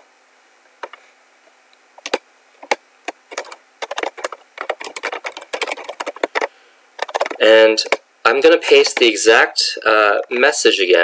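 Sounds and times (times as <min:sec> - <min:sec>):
typing on laptop keyboard: 0:02.0 - 0:08.0.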